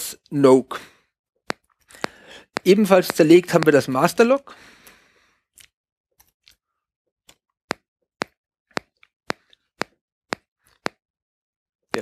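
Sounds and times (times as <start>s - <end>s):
figurine ticking clicks: 1.5s - 3.8s.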